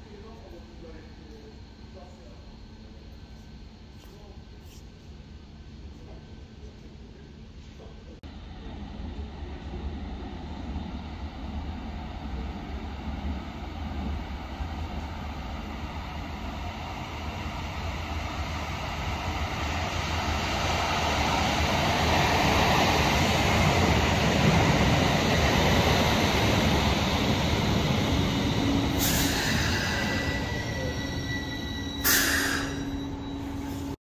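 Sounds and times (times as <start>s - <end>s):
tram rumbling into station: 8.2s - 34.0s.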